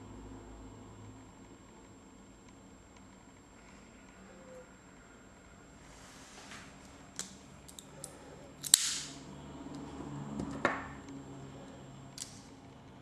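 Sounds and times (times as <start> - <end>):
switchblade knife clicking: 8.6 - 9.2.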